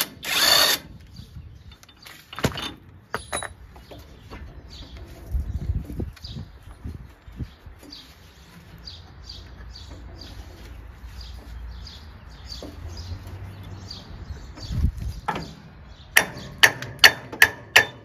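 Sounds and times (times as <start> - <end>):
metallic clinks and knocks: 1.7 - 3.7
bird chirping: 3.2 - 16.8.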